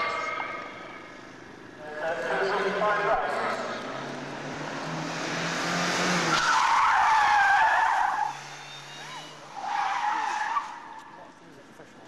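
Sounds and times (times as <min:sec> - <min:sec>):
car tyres squealing: 0:00.0 - 0:01.8, 0:03.5 - 0:11.3.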